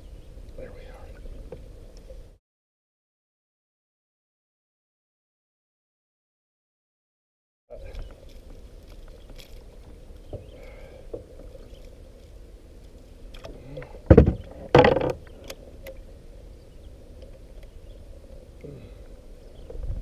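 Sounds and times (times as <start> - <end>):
steady low background noise: 7.7 - 20.0
loud knocks in a kayak: 14.1 - 15.2.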